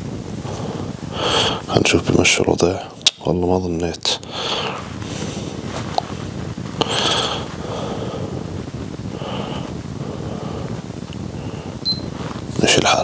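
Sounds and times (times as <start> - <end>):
low hiss and rumble: 0.0 - 13.0
breath: 0.4 - 1.7, 4.2 - 5.7, 6.8 - 12.5.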